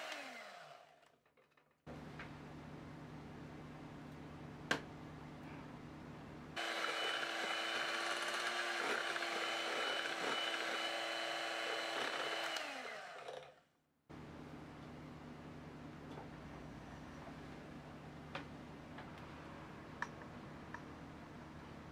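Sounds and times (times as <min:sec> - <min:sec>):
electric hand mixer whining: 0:00.0 - 0:01.0, 0:06.6 - 0:13.6.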